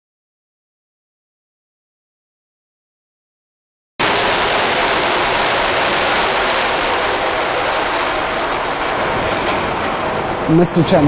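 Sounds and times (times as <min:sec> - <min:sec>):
rocket engines roaring: 0:04.0 - 0:11.0.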